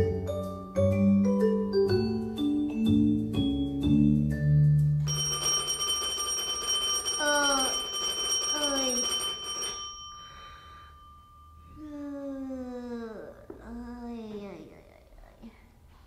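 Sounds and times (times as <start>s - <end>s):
high bell-like ringing: 5.0s - 12.1s.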